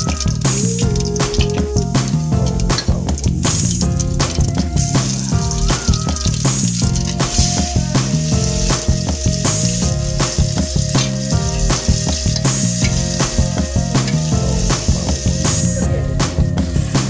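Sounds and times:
onions sizzling in hot oil: 0.0 - 15.8
background music with steady beat: 0.0 - 17.0.

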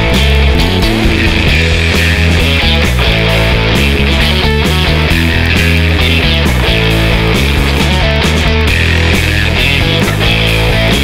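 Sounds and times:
rock music with electric guitar: 0.0 - 11.0.

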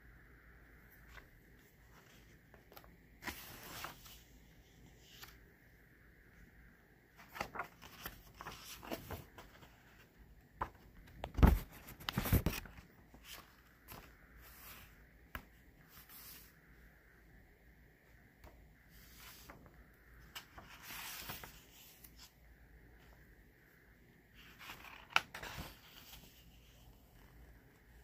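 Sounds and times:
book pages rustling: 0.9 - 5.4, 7.1 - 16.6, 18.9 - 22.4, 24.3 - 28.0.

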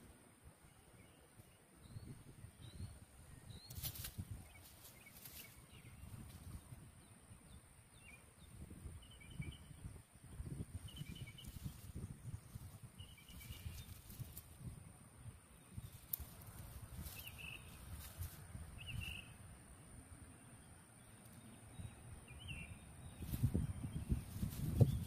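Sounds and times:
dry leaves rustling: 3.7 - 6.6, 11.2 - 14.7, 15.8 - 19.2, 23.2 - 25.0
faint high chirps: 15.6 - 19.4.

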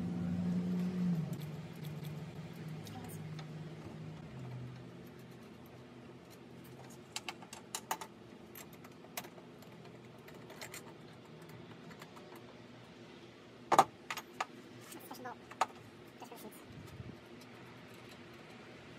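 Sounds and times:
metal nuts and bolts clicking: 4.3 - 12.6.

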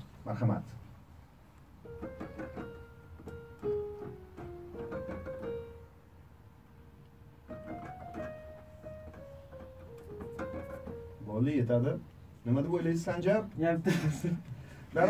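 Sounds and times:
electronic keyboard melody: 1.8 - 11.6.

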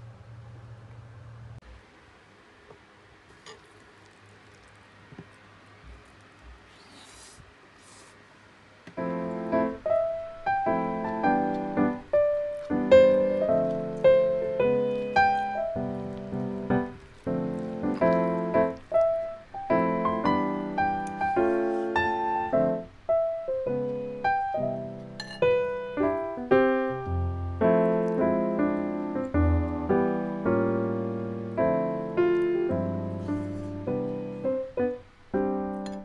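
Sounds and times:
gentle piano melody: 8.9 - 36.0.

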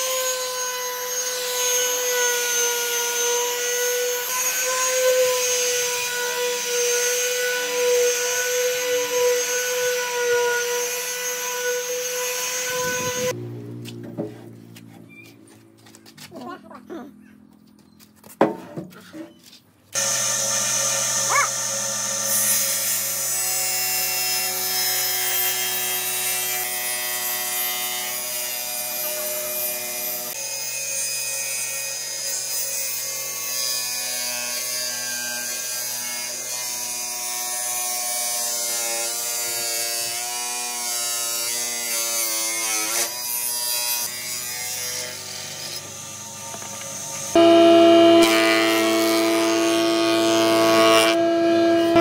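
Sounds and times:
electric power tool motor running: 2.7 - 13.6, 20.0 - 26.4, 44.0 - 52.0.

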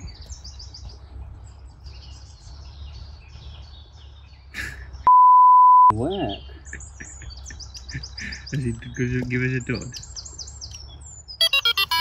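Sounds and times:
low outdoor rumble: 0.0 - 5.1, 5.9 - 11.4
faint birds chirping: 0.0 - 12.0
censor bleep: 5.1 - 6.0.

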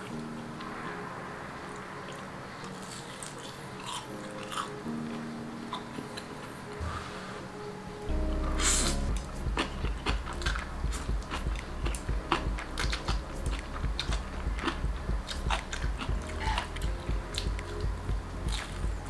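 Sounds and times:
soft background music: 0.0 - 19.0
chewing noodles: 2.1 - 4.8, 9.5 - 17.9, 18.5 - 19.0.

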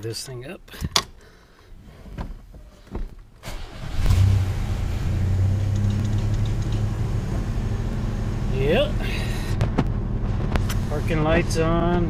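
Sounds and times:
truck engine starting and idling: 3.4 - 12.0.

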